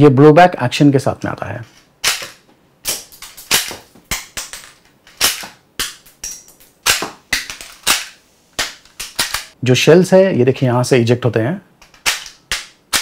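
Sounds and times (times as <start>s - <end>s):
toy pistol snapping shots: 2.0s - 9.6s, 11.8s - 13.0s.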